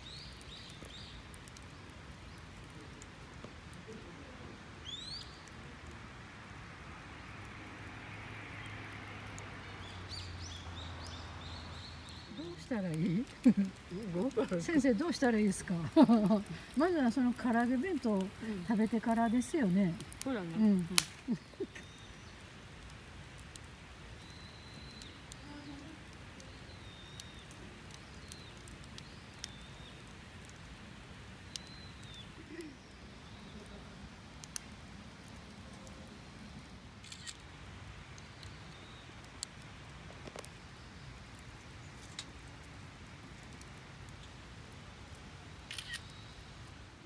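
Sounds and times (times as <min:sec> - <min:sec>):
faint bird chirps: 0:04.8 - 0:05.5, 0:24.2 - 0:30.1, 0:31.4 - 0:33.8
sharp clicks: 0:37.0 - 0:37.4, 0:45.7 - 0:46.2.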